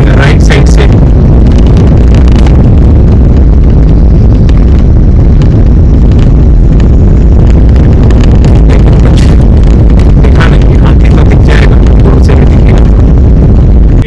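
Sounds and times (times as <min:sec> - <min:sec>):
car engine and road noise: 0:00.0 - 0:14.0.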